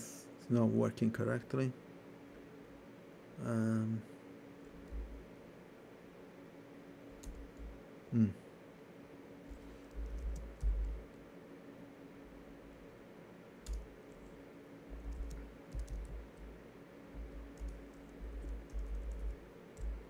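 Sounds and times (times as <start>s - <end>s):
steady low hum: 0.0s - 20.0s
keyboard typing clicks: 7.2s - 7.7s, 9.8s - 11.0s, 13.6s - 14.3s, 14.9s - 16.5s, 17.2s - 20.0s.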